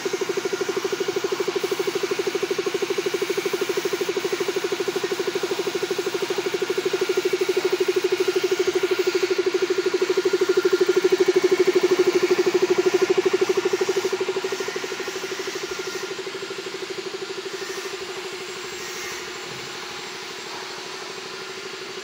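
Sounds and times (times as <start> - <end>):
air compressor humming: 0.0 - 22.0
spray gun hissing: 1.6 - 2.6, 5.1 - 20.7.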